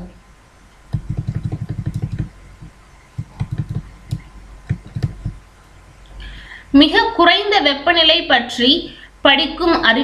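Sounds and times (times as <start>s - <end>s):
mouse scroll wheel clicking: 0.9s - 5.4s.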